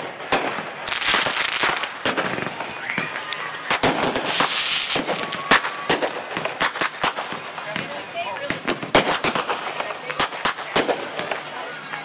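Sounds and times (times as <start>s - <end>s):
fireworks bangs and pops: 0.0s - 12.0s
fireworks crackling hiss: 0.0s - 12.0s.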